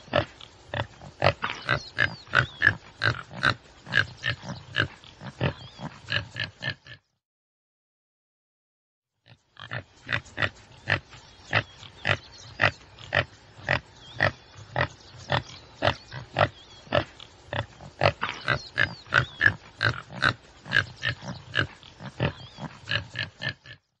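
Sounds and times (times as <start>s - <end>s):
antelope grunting: 0.0s - 7.1s, 9.3s - 23.9s
faint bird chirps: 9.8s - 23.8s.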